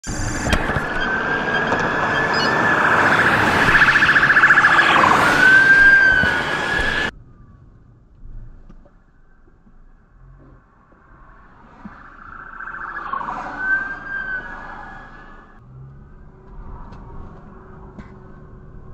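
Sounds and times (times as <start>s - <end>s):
traffic noise: 0.0s - 18.9s
police siren wailing: 0.1s - 7.1s, 11.4s - 18.8s.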